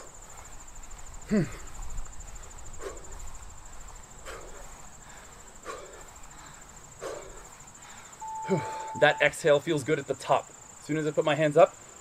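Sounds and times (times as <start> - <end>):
insects trilling: 0.0 - 12.0
man exhaling sharply: 8.4 - 9.0.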